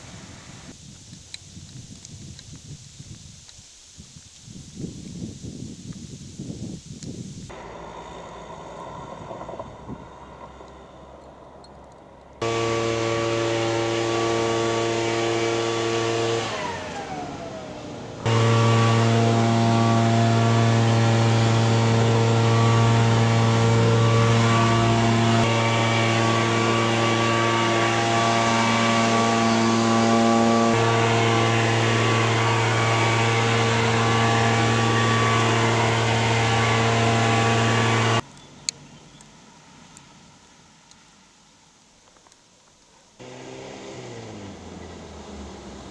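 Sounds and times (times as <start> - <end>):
small engine running: 7.5 - 38.2, 43.2 - 45.9.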